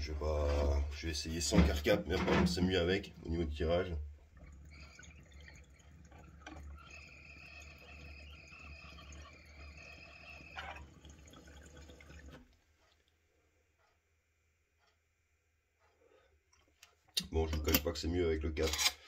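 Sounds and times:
water bubbling in a pipe: 0:02.7 - 0:12.6
thin steady whistle: 0:06.7 - 0:10.8.

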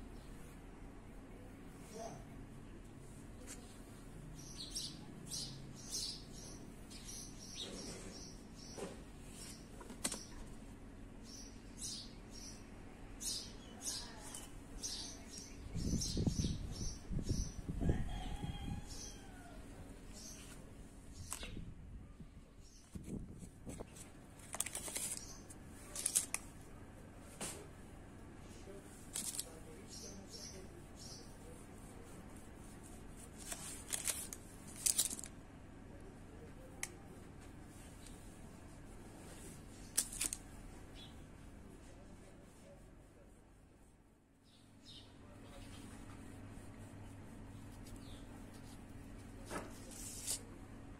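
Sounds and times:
small birds chirping: 0:03.4 - 0:10.5, 0:11.2 - 0:17.7, 0:24.6 - 0:26.3, 0:28.6 - 0:31.6, 0:44.4 - 0:46.2, 0:47.5 - 0:48.8
baking paper rustling: 0:22.8 - 0:26.6, 0:28.7 - 0:35.4, 0:37.3 - 0:41.0, 0:45.8 - 0:50.5.

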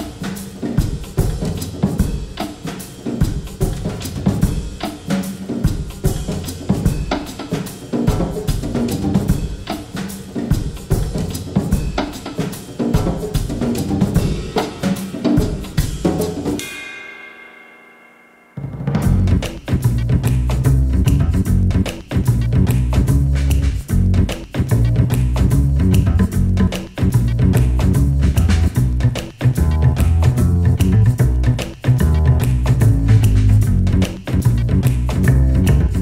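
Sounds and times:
drum kit beat: 0:00.0 - 0:17.6, 0:18.6 - 0:36.0
bass line: 0:19.0 - 0:36.0.

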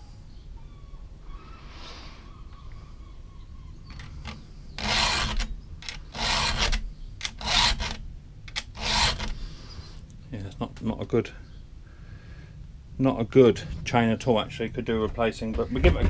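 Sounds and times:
file rasping on chain teeth: 0:04.8 - 0:09.4.

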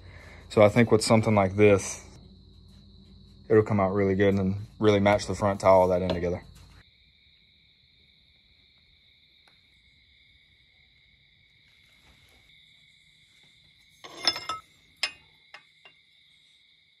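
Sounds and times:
crickets trilling: 0:00.0 - 0:17.0
metallic clinks and knocks: 0:14.0 - 0:16.0.

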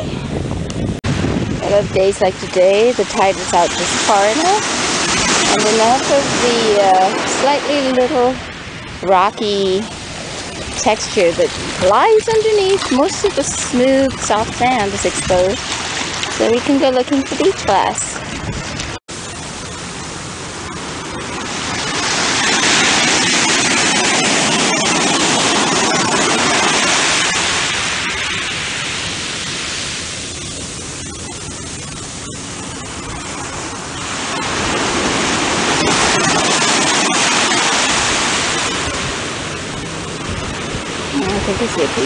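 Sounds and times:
ocean surf breaking: 0:00.0 - 0:42.0.

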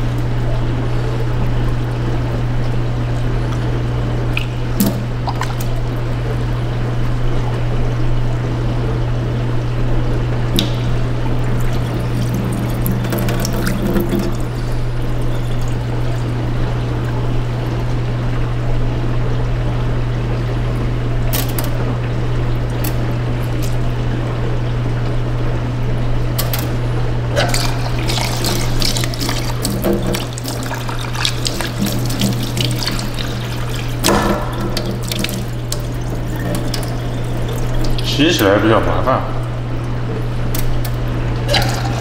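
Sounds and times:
water sloshing and splashing: 0:00.0 - 0:07.6, 0:08.2 - 0:42.0
steady low hum: 0:00.0 - 0:42.0
water poured into sink: 0:04.2 - 0:06.0, 0:10.5 - 0:16.4, 0:27.4 - 0:38.6, 0:41.4 - 0:42.0.

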